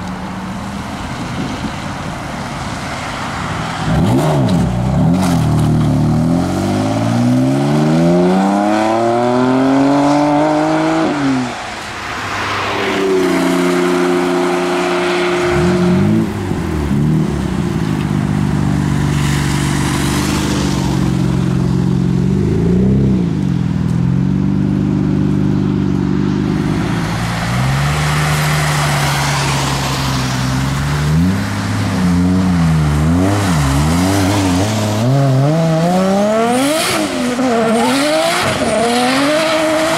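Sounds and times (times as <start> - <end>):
cars revving as they pull out: 0.0 - 39.9
car accelerating away: 3.9 - 11.6, 26.4 - 39.9.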